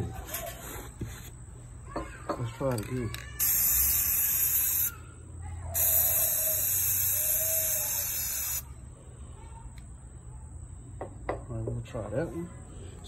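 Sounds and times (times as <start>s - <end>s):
spray paint can hissing: 3.4s - 5.0s, 5.8s - 8.7s.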